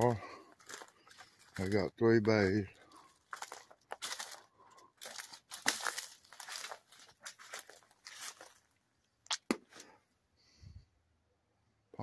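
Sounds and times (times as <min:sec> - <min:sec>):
footsteps crunching on gravel: 0:00.0 - 0:08.7.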